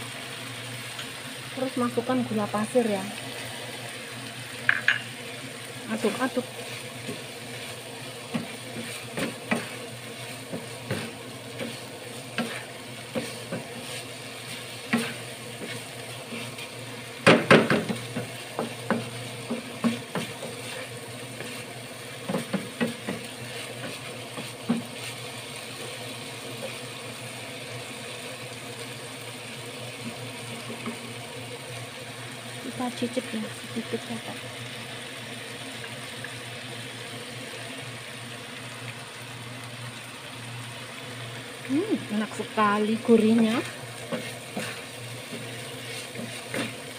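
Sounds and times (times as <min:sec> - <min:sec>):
oil sizzling: 0:00.0 - 0:46.9
wooden spatula scraping pan: 0:06.0 - 0:16.8, 0:17.6 - 0:25.2, 0:43.2 - 0:46.9
spatula knocking against pan: 0:17.2 - 0:20.6, 0:22.2 - 0:23.9.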